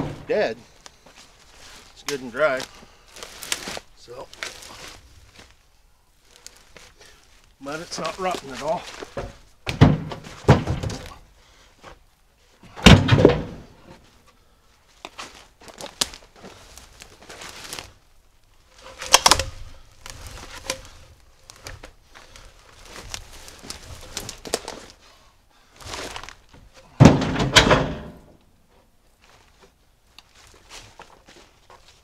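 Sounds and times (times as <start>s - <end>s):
logs thunking onto truck bed: 0.0s - 0.4s, 9.0s - 11.2s, 12.6s - 14.0s, 26.0s - 28.4s
shuffling and handling noise: 0.5s - 9.6s, 13.9s - 26.9s, 28.7s - 32.0s.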